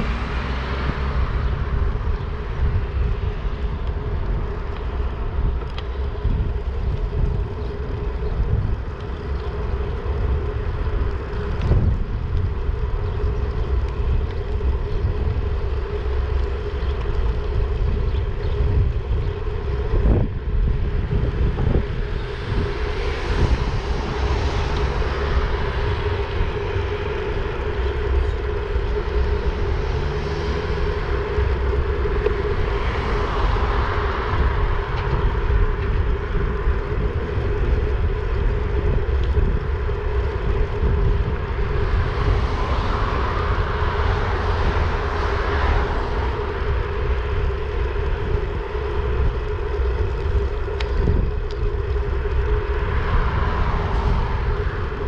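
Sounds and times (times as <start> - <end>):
road traffic passing: 0.0 - 55.0
wind rushing over microphone: 0.0 - 55.0.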